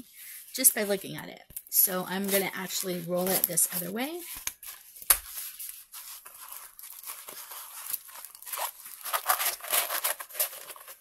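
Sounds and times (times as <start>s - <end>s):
plastic canvas rustling and crinkling: 1.7s - 11.0s.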